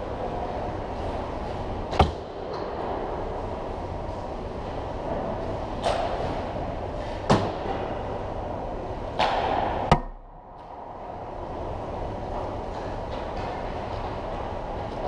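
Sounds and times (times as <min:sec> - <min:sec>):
sharp cracks of sticks and pucks: 0:09.2 - 0:10.8.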